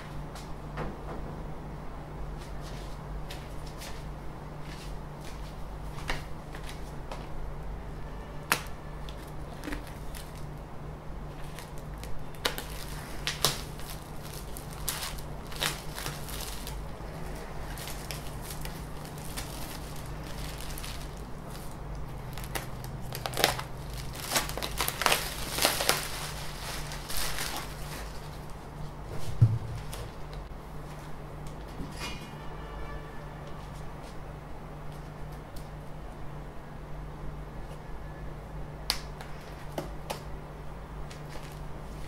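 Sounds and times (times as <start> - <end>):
steady low hum: 0.0 - 42.0
plastic bag crinkling: 11.3 - 28.6.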